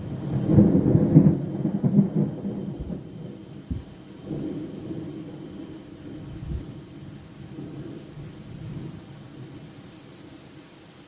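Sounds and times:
thunder rumbling: 0:00.0 - 0:10.3
heavy rain: 0:00.0 - 0:11.0.

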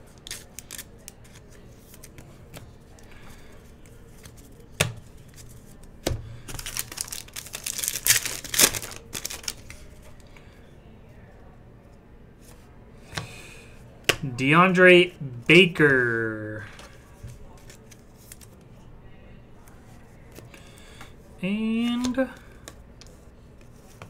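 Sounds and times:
wrapper crinkling and tearing: 0:00.1 - 0:01.5, 0:06.5 - 0:09.9
cards shuffling: 0:00.1 - 0:10.2, 0:16.7 - 0:18.6, 0:21.8 - 0:24.0.

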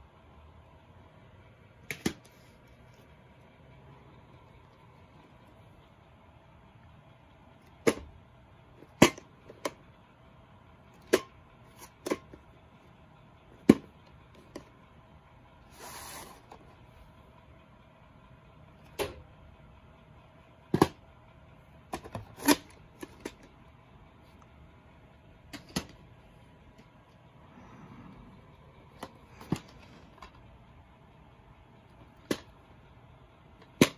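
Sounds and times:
short rustling scrape: 0:15.7 - 0:16.7.

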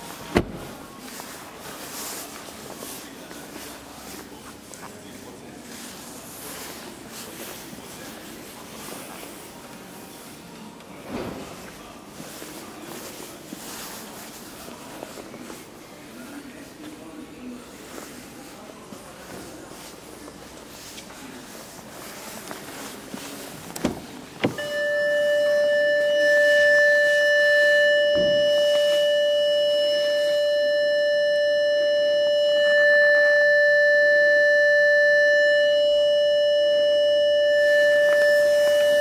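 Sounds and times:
electronic warning tone: 0:24.5 - 0:39.0.

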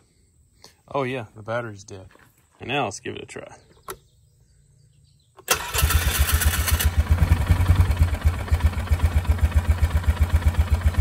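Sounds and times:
engine starting and idling: 0:05.4 - 0:11.0.

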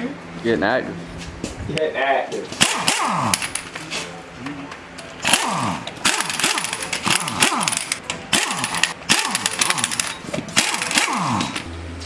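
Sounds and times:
pneumatic impact wrench: 0:02.6 - 0:03.7, 0:05.2 - 0:11.7.

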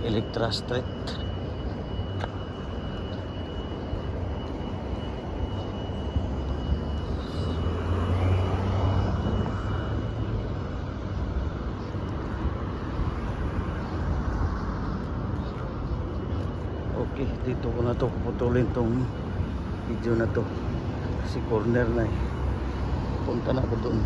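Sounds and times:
faint high steady tone: 0:00.0 - 0:24.0
passing cars: 0:04.8 - 0:24.0.

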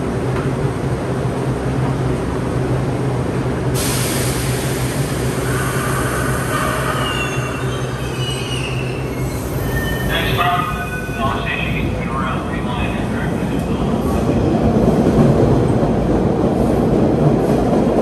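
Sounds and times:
subway train humming: 0:00.0 - 0:18.0
air hissing: 0:03.8 - 0:08.2
train whining tones: 0:04.4 - 0:13.7.

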